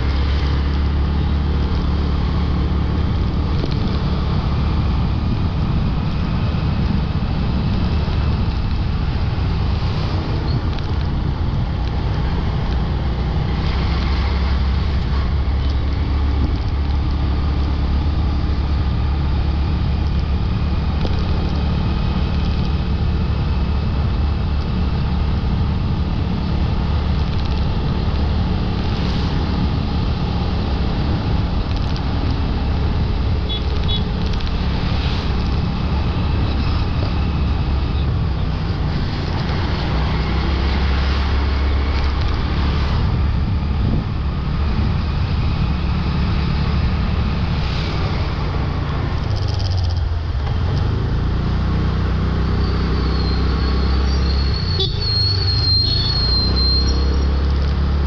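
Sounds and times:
road traffic rumble: 0.0 - 58.0.

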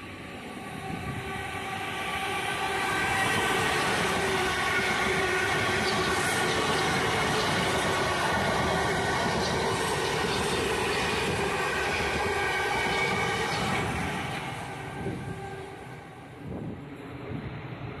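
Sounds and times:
electric train rumble and rail noise: 0.0 - 18.0
steady train whine: 0.0 - 18.0.

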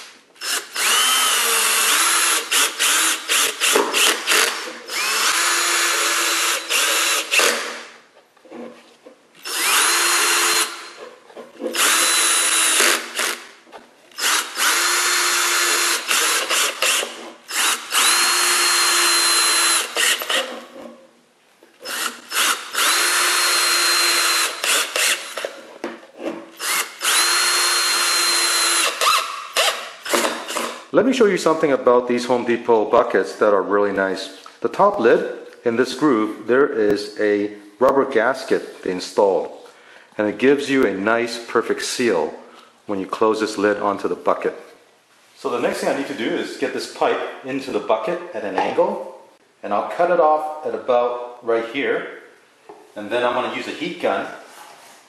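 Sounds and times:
cordless drill motor whine: 0.4 - 3.5, 4.4 - 7.4, 9.4 - 10.8, 14.2 - 20.4, 26.6 - 29.7.

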